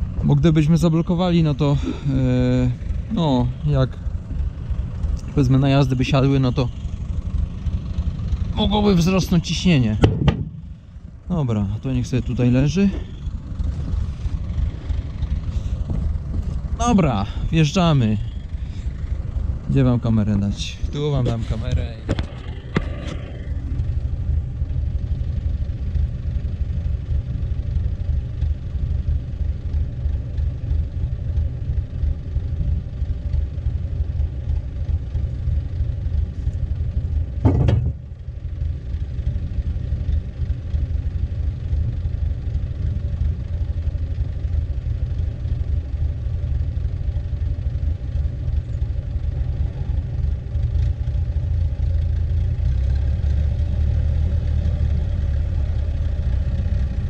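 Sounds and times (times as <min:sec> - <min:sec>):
tractor engine rumbling: 0:00.0 - 0:57.0
loud metal clank: 0:10.0 - 0:10.8, 0:37.4 - 0:38.0.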